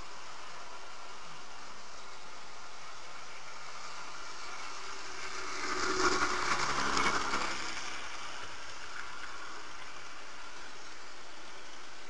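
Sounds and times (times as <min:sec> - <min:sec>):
model train motor and wheel noise: 0:00.0 - 0:12.0
wheels clicking over track: 0:03.2 - 0:12.0.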